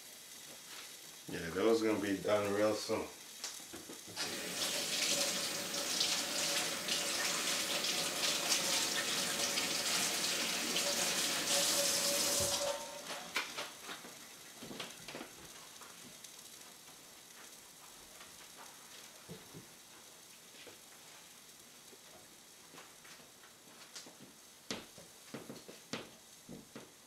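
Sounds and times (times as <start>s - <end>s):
fish sizzling on a grill: 0.0s - 25.2s
faint pops and crackles: 3.3s - 4.2s.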